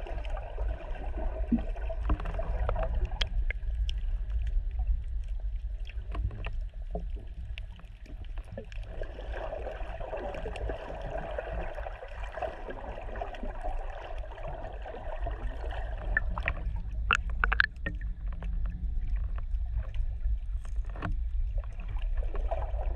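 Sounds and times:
underwater rumble of moving water: 0.0s - 22.9s
sharp clicks and crackles: 16.1s - 20.0s.

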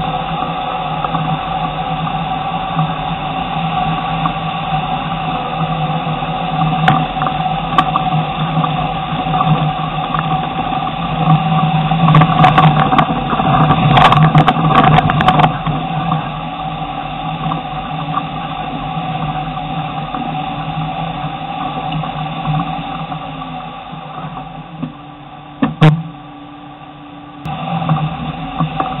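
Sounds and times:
car engine running under load: 0.0s - 29.0s
knocks and clatter over rocks: 6.5s - 24.9s.

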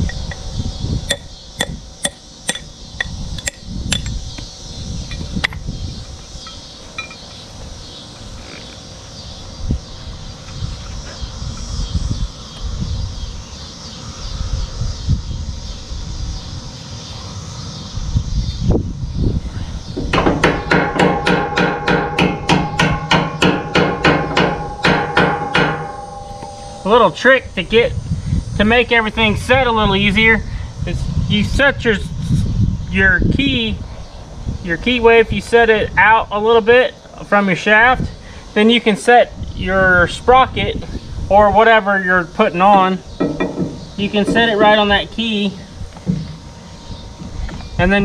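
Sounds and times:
hammer tapping on steel: 20.1s - 27.2s, 42.8s - 44.9s.

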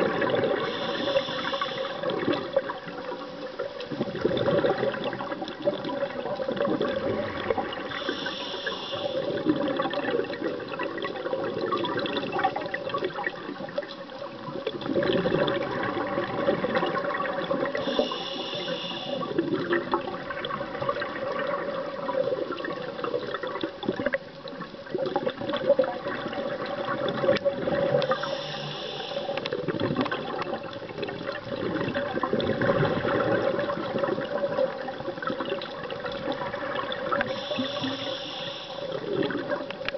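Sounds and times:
underwater water and bubbles rushing: 0.0s - 39.9s
scuba regulator hissing: 0.6s - 2.1s, 8.0s - 9.3s, 17.8s - 19.3s, 28.0s - 29.4s, 37.3s - 39.0s.

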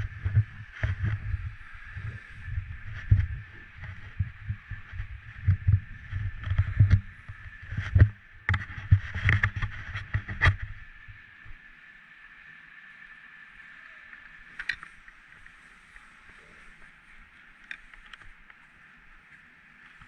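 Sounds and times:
skis scraping over snow: 0.0s - 11.2s.

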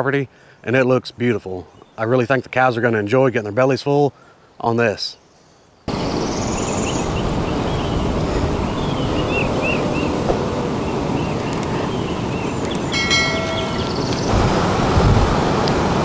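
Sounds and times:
bird chirps: 5.3s - 14.4s
steady rushing noise: 5.9s - 16.0s.

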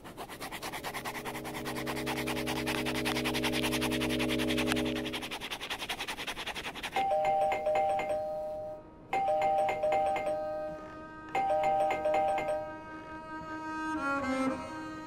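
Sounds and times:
pen scribbling on paper: 0.0s - 7.7s
two-tone doorbell ringing: 7.0s - 12.8s.

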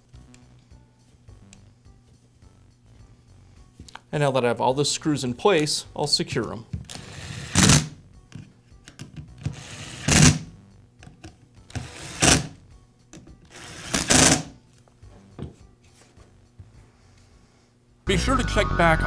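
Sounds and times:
electric screwdriver whirring: 6.9s - 7.9s, 9.4s - 10.5s, 11.7s - 12.5s, 13.5s - 14.5s.

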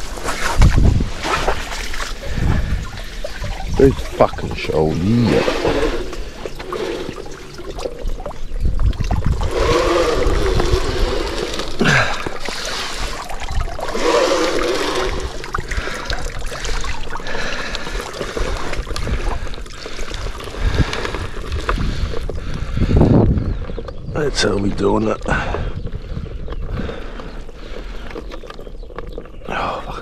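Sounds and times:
river water splashing and gurgling: 0.0s - 21.5s.

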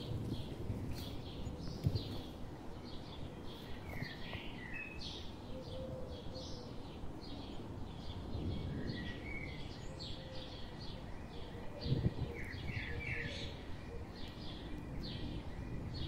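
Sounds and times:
low outdoor rumble: 0.0s - 5.4s
small birds chirping: 0.0s - 16.0s.

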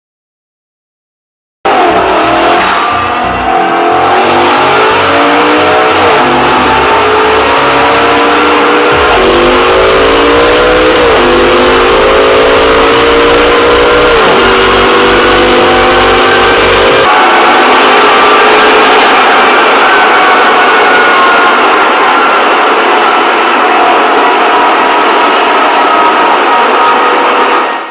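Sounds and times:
race car engine accelerating: 1.7s - 27.9s.

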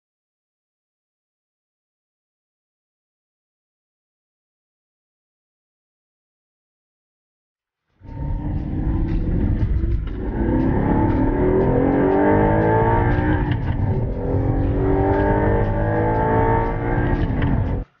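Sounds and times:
sports car engine accelerating: 8.0s - 18.0s.

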